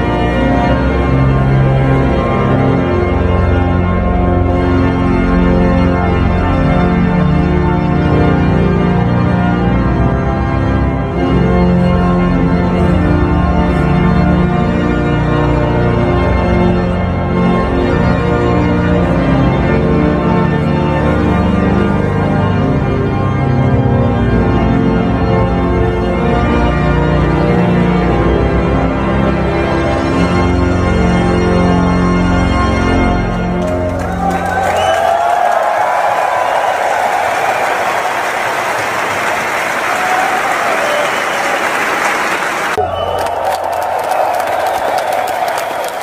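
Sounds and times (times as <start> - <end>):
pipe organ chords: 0.0 - 35.1.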